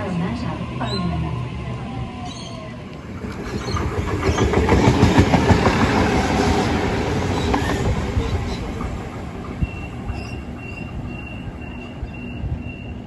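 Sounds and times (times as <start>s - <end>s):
train wheels clattering over rail joints: 3.1s - 12.0s.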